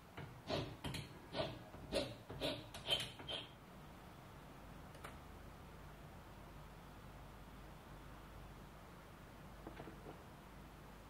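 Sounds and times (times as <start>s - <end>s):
hand file scraping: 0.4s - 3.5s.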